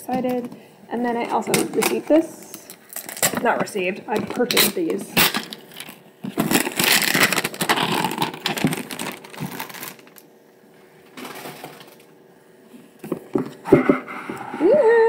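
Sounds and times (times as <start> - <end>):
packaging crinkling: 2.6 - 3.5, 4.2 - 10.3.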